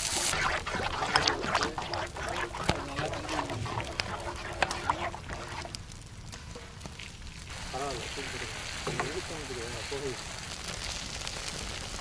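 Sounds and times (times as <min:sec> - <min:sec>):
metal spoon stirring in metal bowl: 0:00.0 - 0:05.8.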